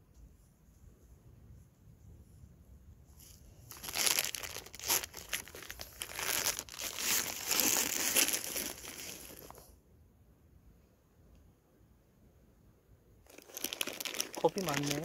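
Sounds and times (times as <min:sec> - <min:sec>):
plastic wrapper crinkling: 0:03.7 - 0:09.6, 0:13.3 - 0:15.0.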